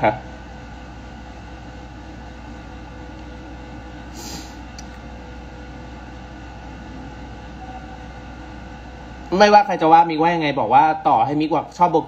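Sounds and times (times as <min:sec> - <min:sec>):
air conditioner humming: 0:00.0 - 0:12.0
short hiss: 0:04.1 - 0:04.6.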